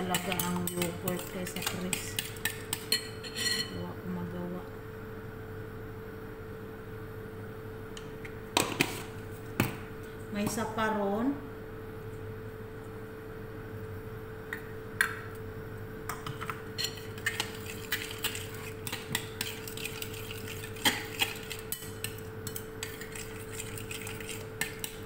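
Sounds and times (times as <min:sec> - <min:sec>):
spoon clinking against glass bowl: 0:00.0 - 0:03.8, 0:16.8 - 0:17.4
steady low hum: 0:00.0 - 0:25.0.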